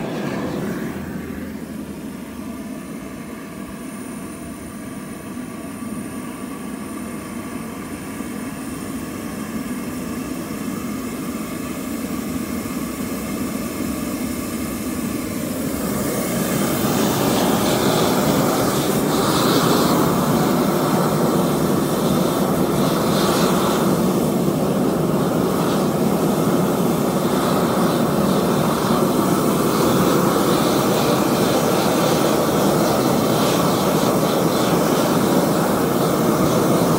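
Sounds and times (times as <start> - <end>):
gas burners rushing: 0.0 - 3.3, 15.3 - 36.9.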